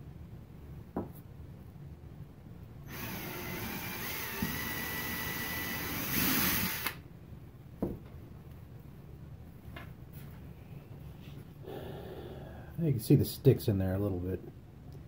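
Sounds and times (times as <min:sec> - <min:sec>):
cordless drill whining: 0:02.9 - 0:07.0.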